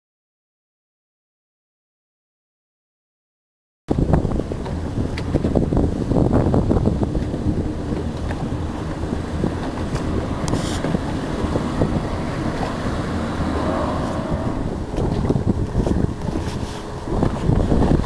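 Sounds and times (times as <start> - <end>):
boat engines droning: 3.9 - 18.0
wind buffeting microphone: 3.9 - 18.0
water rushing: 4.1 - 18.0.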